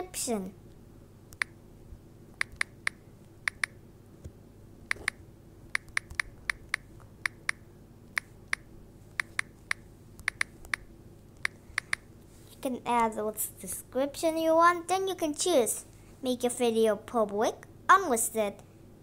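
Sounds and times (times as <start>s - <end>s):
touchscreen key-press clicks: 1.3s - 1.6s, 2.4s - 3.8s, 4.9s - 5.2s, 5.8s - 7.6s, 8.2s - 12.0s.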